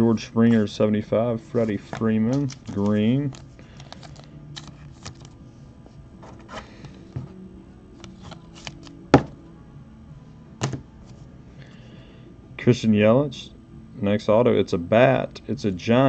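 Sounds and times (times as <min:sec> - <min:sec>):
trading cards rustling and tapping: 0:01.6 - 0:05.4, 0:08.0 - 0:09.4.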